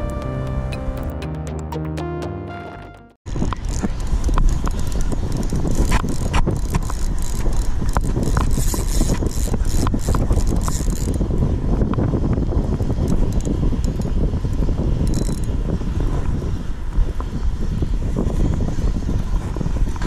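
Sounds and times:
wind rumble on microphone: 0:03.3 - 0:20.0
fishing reel clicking: 0:03.7 - 0:11.2.

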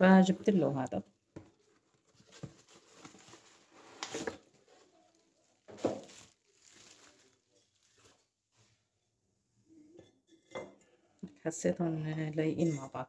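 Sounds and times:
cardboard packaging rustling: 0:01.3 - 0:08.3.

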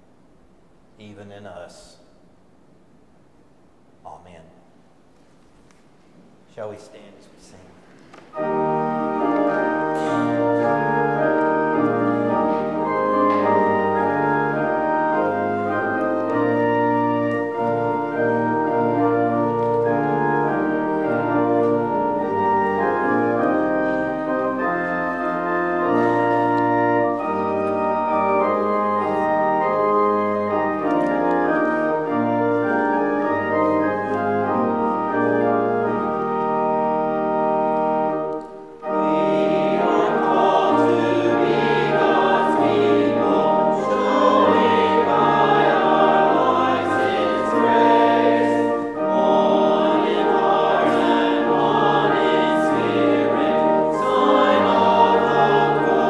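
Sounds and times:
pipe organ playing chords: 0:08.1 - 0:56.0.

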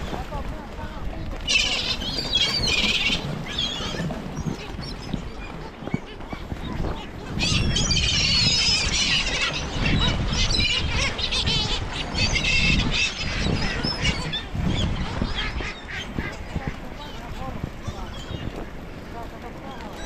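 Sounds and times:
gull squawks: 0:01.4 - 0:17.3.

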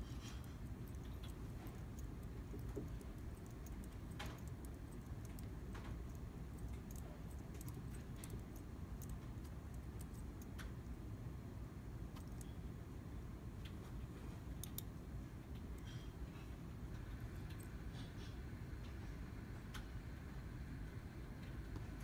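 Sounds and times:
faint ticks and clicks: 0:00.0 - 0:11.0, 0:12.0 - 0:12.6, 0:13.6 - 0:19.0.

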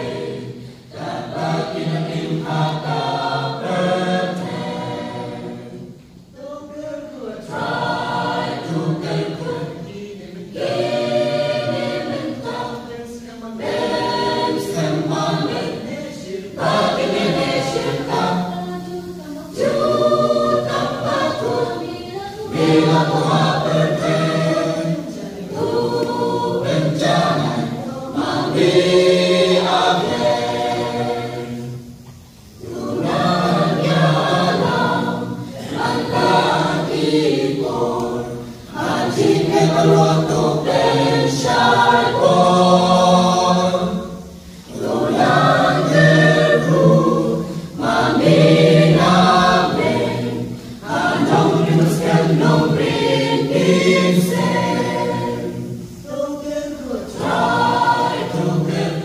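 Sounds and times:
mixed choir singing a hymn: 0:00.0 - 0:59.0.

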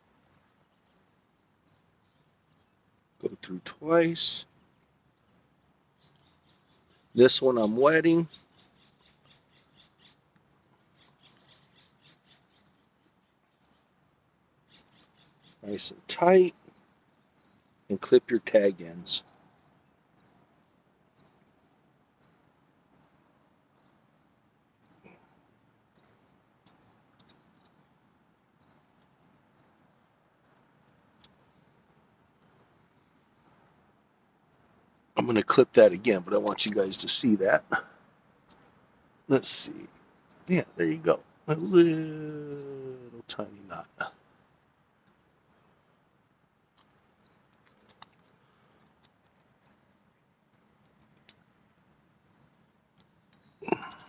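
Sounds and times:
faint bird chirps: 0:00.0 - 0:34.9, 0:39.4 - 0:44.3, 0:51.2 - 0:54.0
small sharp metal clicks: 0:26.6 - 0:27.9, 0:30.8 - 0:31.4, 0:46.7 - 0:49.8, 0:50.5 - 0:52.1, 0:52.9 - 0:54.0
light clicks: 0:46.7 - 0:49.8.

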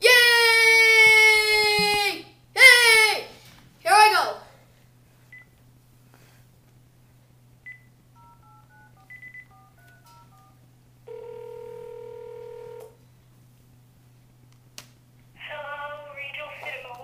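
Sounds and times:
keypad beep: 0:07.7 - 0:10.6
touch-tone dialing tones: 0:08.2 - 0:12.7
phone ringback tone: 0:08.2 - 0:13.0.

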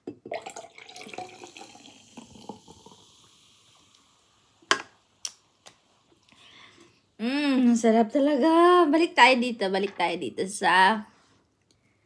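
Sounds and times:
beer pouring and fizzing: 0:00.2 - 0:06.4.

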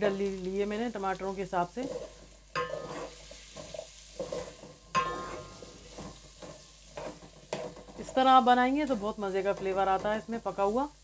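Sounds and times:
food sizzling in butter: 0:00.0 - 0:11.0
wooden spatula scraping pot: 0:01.7 - 0:08.4.

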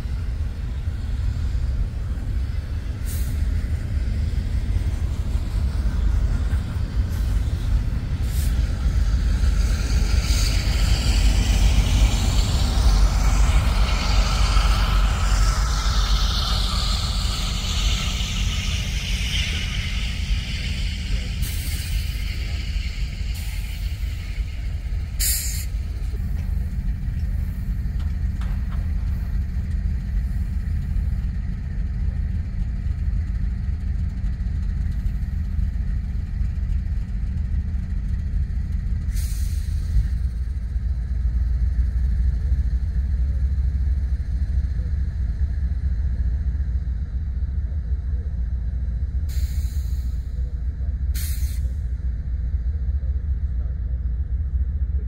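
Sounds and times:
train passing rumble: 0:00.0 - 0:55.0.

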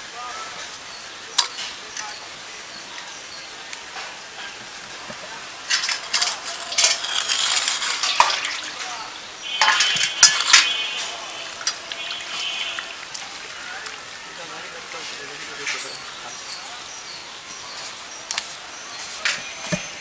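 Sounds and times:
water splashing in a bowl: 0:05.0 - 0:15.0
clinks against metal bowl: 0:09.6 - 0:10.8.

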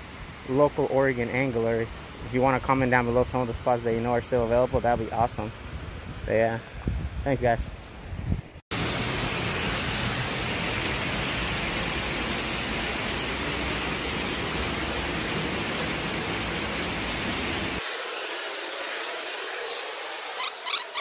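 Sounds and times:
waterfall roaring: 0:08.8 - 0:21.0.

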